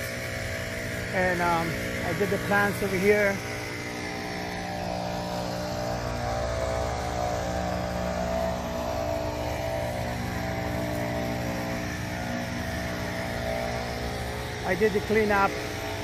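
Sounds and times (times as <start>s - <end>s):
engine running steadily: 0.0s - 16.0s.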